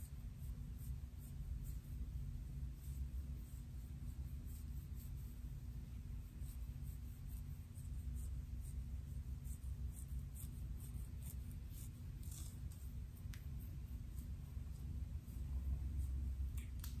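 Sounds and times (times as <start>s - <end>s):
low steady hum: 0.0s - 17.0s
fingernails scratching hair: 6.2s - 16.2s.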